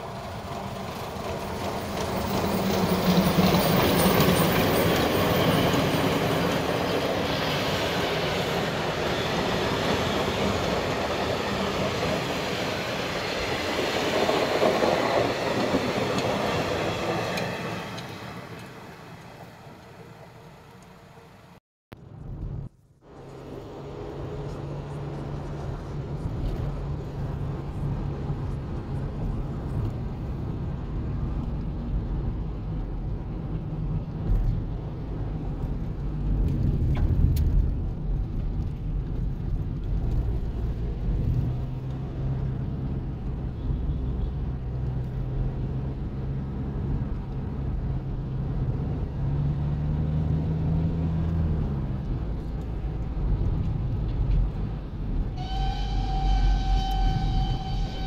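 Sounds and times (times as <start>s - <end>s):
road noise inside car: 17.4s - 58.0s.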